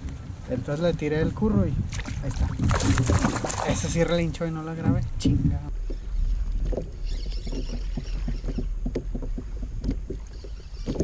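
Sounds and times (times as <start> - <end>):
wind rumble on microphone: 0.0 - 11.0
water splashing against kayak: 1.8 - 11.0
small irregular knocks: 5.8 - 11.0.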